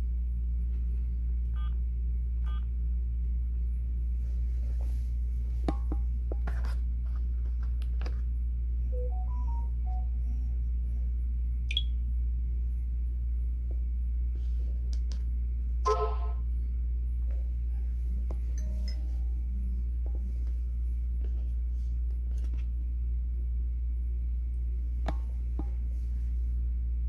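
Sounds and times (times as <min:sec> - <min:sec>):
steady low hum: 0:00.0 - 0:27.0
phone keypad beep: 0:09.0 - 0:10.0
high electronic chirp: 0:11.7 - 0:11.9.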